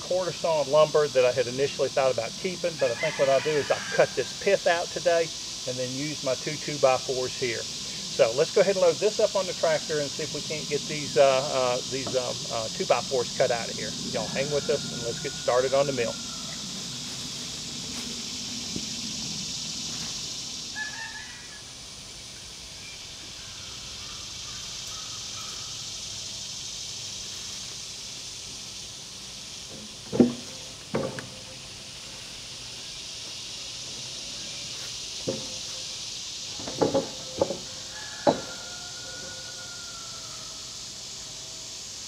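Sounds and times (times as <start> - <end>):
high insect buzz: 0.0 - 42.0
wooden beams knocking: 29.7 - 31.3, 35.2 - 35.6, 36.6 - 38.5.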